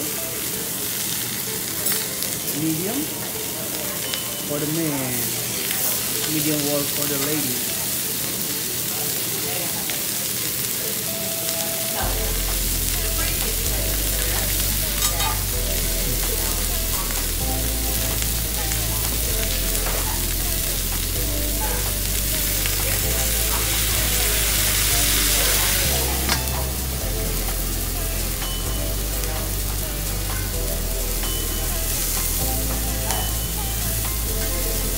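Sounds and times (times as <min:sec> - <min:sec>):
food sizzling on a griddle: 0:00.0 - 0:34.9
background music with bass: 0:12.0 - 0:34.9.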